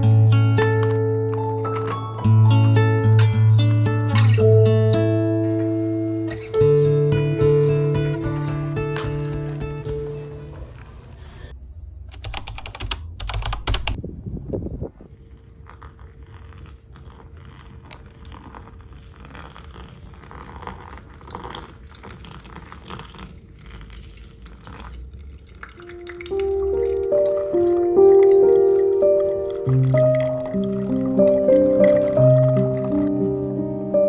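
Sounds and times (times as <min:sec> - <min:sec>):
water pouring from a kettle: 0:15.2 - 0:33.1
water trickling into carafe: 0:15.3 - 0:33.1.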